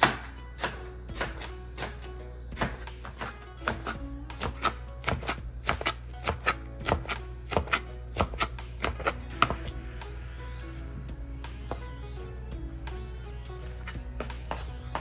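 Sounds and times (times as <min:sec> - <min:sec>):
knife chopping on cutting board: 0:00.0 - 0:09.7
background music: 0:00.0 - 0:15.0.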